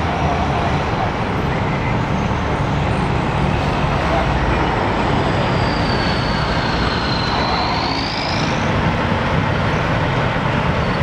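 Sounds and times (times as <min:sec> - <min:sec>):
road traffic: 0:00.0 - 0:11.0.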